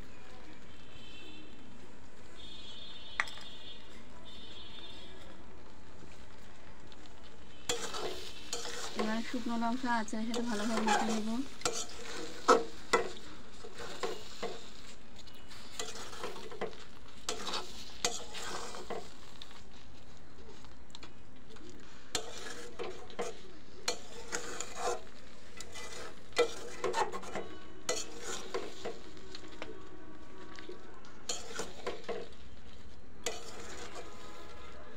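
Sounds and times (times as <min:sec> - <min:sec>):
syrup sizzling: 0:00.0 - 0:34.9
metal spatula scraping pan: 0:07.7 - 0:19.4, 0:22.1 - 0:29.6, 0:31.3 - 0:32.4, 0:33.2 - 0:34.8.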